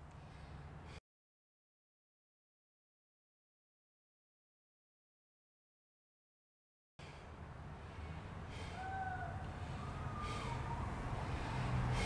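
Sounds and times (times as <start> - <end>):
low outdoor rumble: 7.0 - 12.0
distant siren wailing: 8.5 - 12.0.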